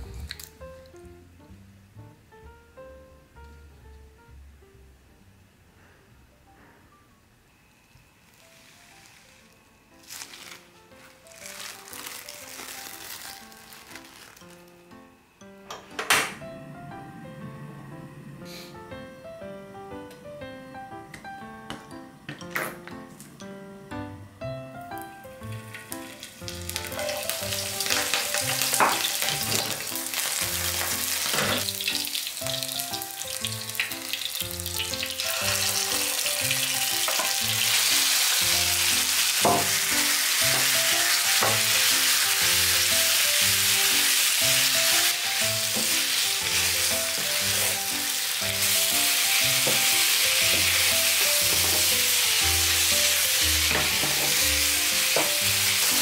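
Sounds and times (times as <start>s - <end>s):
soft background music: 0.0s - 56.0s
oil sizzling in a frying pan: 8.4s - 14.6s, 25.4s - 56.0s.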